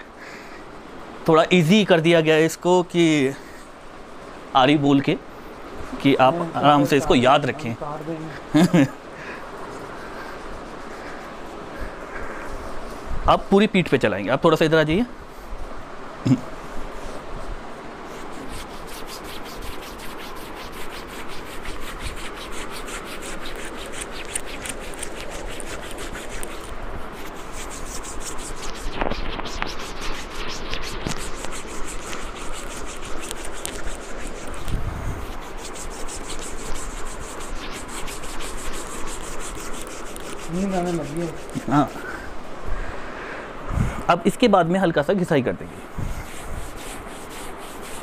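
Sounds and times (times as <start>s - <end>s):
hands rubbing on shirt: 9.6s - 13.1s, 16.9s - 42.3s, 45.6s - 48.0s.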